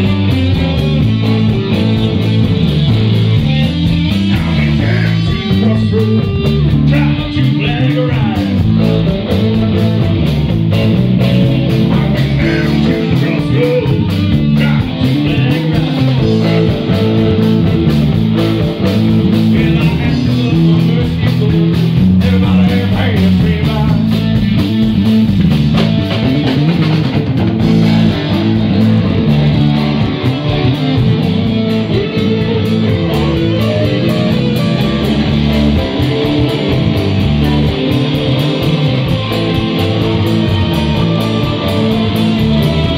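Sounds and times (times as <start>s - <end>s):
drum kit: 0.0s - 42.9s
electric bass: 0.0s - 42.9s
overdriven electric guitars: 0.0s - 42.9s
man singing: 3.2s - 9.1s, 11.4s - 17.8s, 19.3s - 24.6s, 27.6s - 29.0s.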